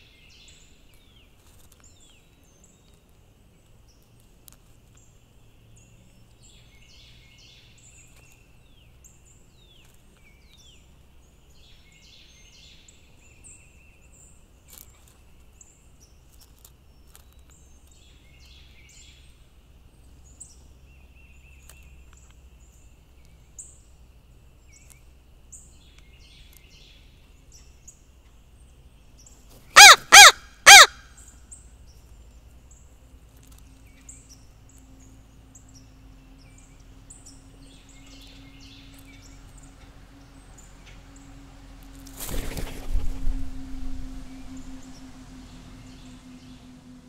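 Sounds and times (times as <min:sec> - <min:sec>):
small birds chirping: 0:00.0 - 0:41.4
crow wingbeats: 0:29.8 - 0:30.9, 0:42.0 - 0:44.3
crow cawing: 0:29.8 - 0:31.0.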